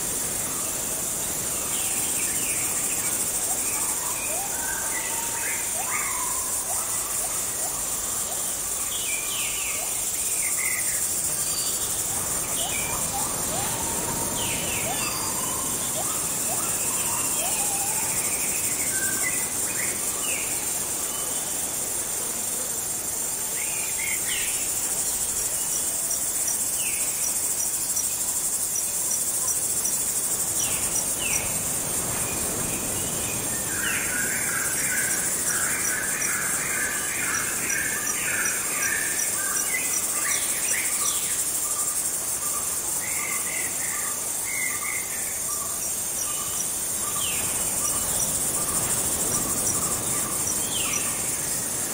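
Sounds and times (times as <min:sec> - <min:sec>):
bird calls: 0:00.0 - 0:21.8
cricket chirps: 0:00.0 - 0:51.9
insect chorus: 0:00.0 - 0:51.9.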